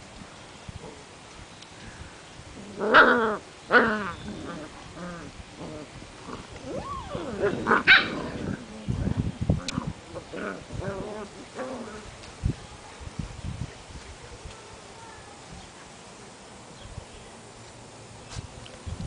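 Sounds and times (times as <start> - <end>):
puppies growling and yipping: 2.7 - 12.1
puppies yelping barks: 6.6 - 8.4.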